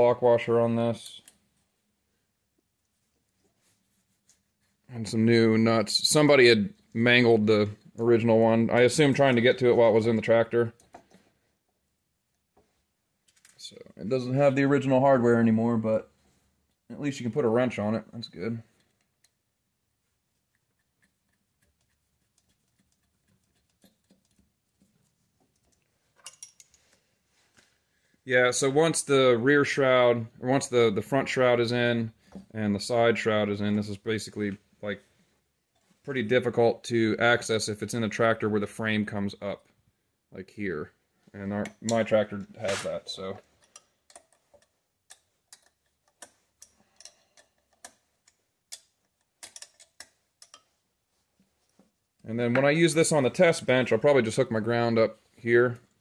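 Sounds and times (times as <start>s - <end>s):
small metal clicks and taps: 43.6s - 50.7s.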